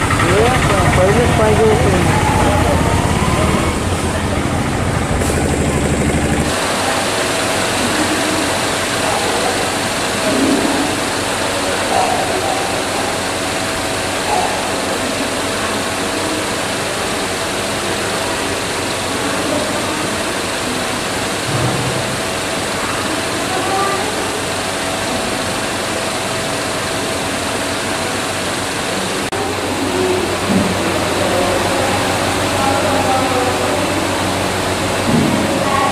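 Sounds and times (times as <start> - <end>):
machine drone: 0.0 - 35.9
faint distant voices: 29.1 - 35.9.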